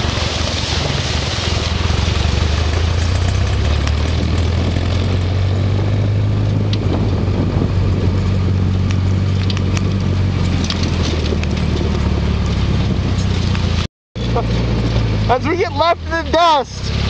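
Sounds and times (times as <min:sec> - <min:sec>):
vehicle engine under load: 0:00.0 - 0:17.0.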